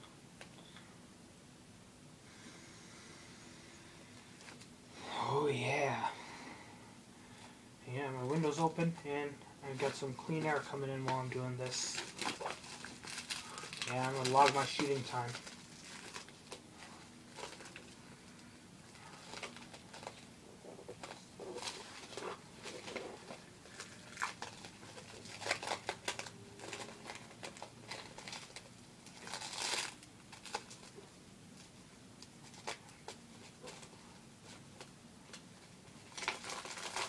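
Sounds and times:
plastic wrapping crinkling and tearing: 9.7 - 37.0.

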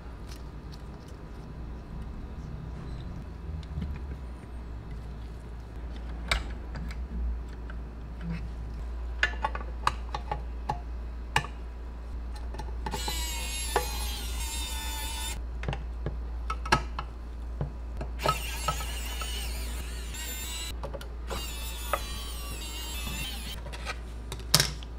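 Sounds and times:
electric screwdriver whirring: 13.0 - 15.4, 18.2 - 20.7, 21.3 - 23.6.

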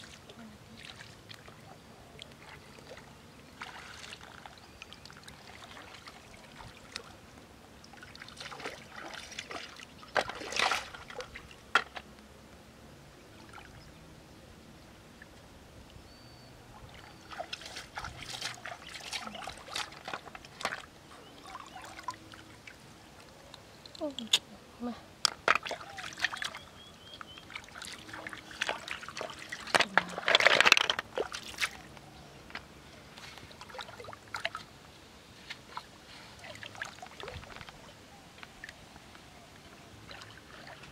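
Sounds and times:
river water splashing and trickling: 0.0 - 12.1, 13.2 - 40.9
water splashing into basin: 8.0 - 11.5
snails clicking into metal basin: 29.6 - 31.1.

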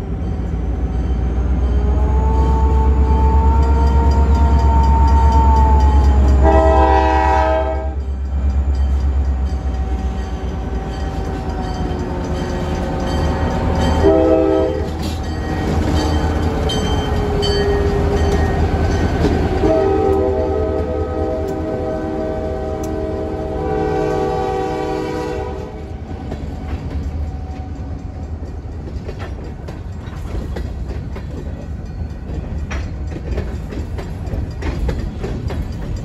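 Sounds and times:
diesel locomotive rumble: 0.0 - 36.0
locomotive horn chord: 5.7 - 8.0, 14.0 - 15.0, 19.6 - 25.9.

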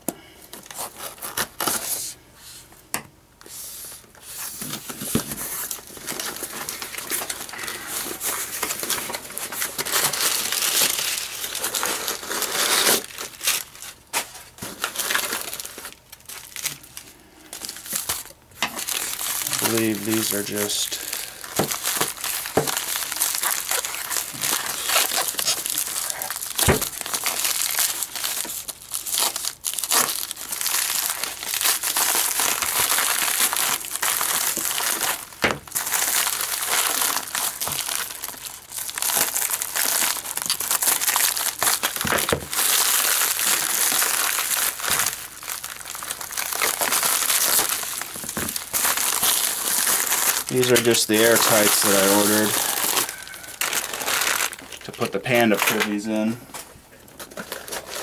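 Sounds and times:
plastic and bubble wrap crinkling: 0.4 - 2.6, 3.4 - 58.0.

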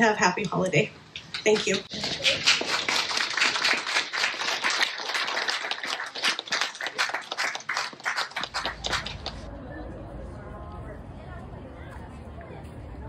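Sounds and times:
crowd applauding: 1.3 - 9.5.

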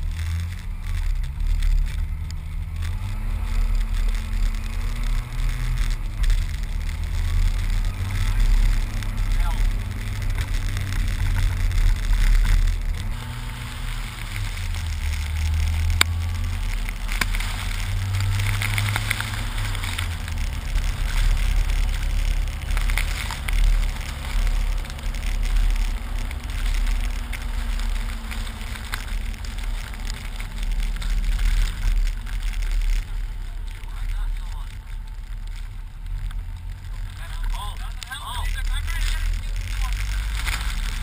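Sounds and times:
car engine running: 0.0 - 41.0
wind and blowing snow: 0.0 - 41.0.

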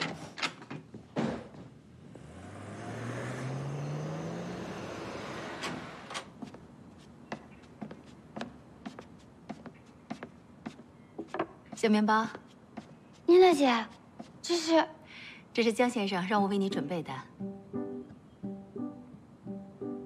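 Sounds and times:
vehicle engine accelerating: 2.0 - 6.1
light footsteps: 6.2 - 14.7.

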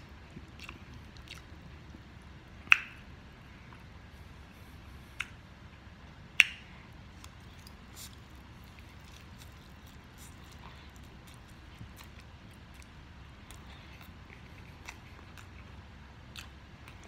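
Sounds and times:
wet mouth ticks: 2.6 - 3.0.

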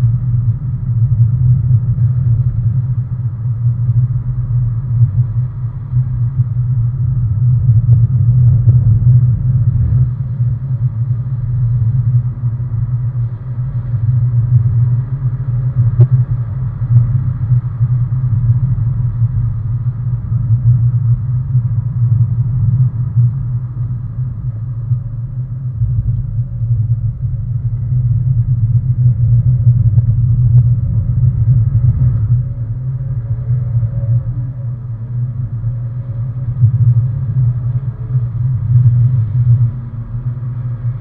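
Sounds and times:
car engine drone inside cabin: 0.0 - 41.0
road noise: 10.0 - 41.0.

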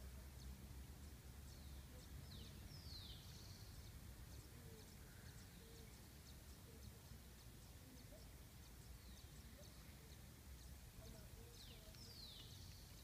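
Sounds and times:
bird chirps: 0.4 - 13.0
light high ticks: 10.1 - 13.0.

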